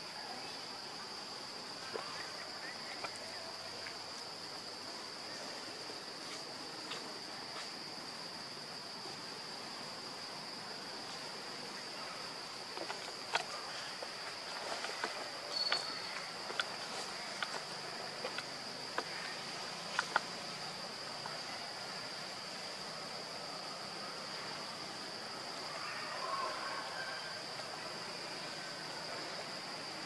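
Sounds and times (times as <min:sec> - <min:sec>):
faint forest hiss: 0:00.0 - 0:30.0
faint clicks: 0:14.7 - 0:19.2, 0:19.9 - 0:20.5.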